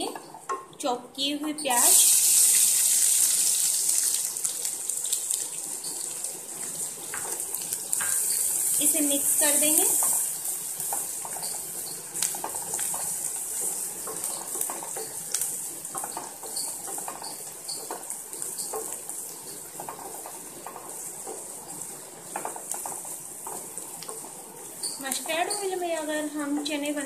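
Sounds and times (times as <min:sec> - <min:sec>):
onions sizzling in oil: 0:01.6 - 0:27.0
spatula scraping a pan: 0:09.4 - 0:25.8.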